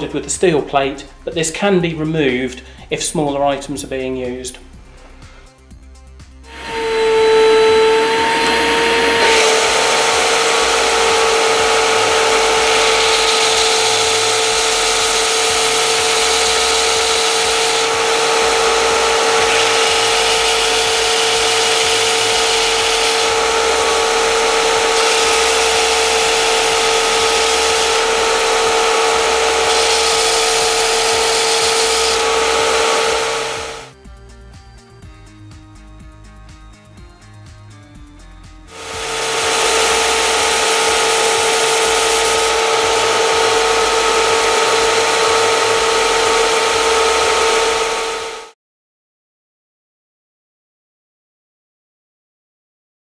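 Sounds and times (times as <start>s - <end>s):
sander motor whine: 6.4s - 34.0s, 38.7s - 48.6s
wood being sanded: 6.5s - 33.9s, 38.7s - 48.5s.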